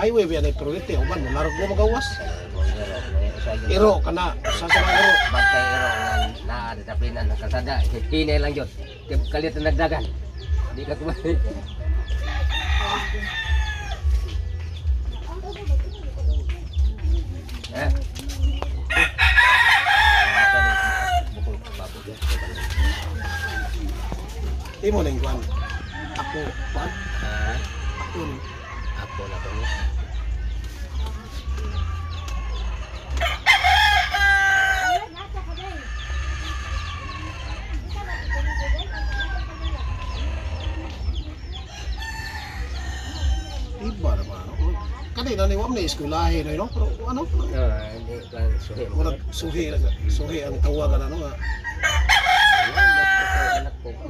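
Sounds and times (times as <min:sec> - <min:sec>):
roosters crowing: 0:00.0 - 0:54.0
rooster crowing: 0:00.9 - 0:03.6, 0:04.4 - 0:06.4, 0:18.9 - 0:21.4, 0:31.7 - 0:35.1, 0:51.4 - 0:53.7
chicken clucking: 0:07.3 - 0:49.2.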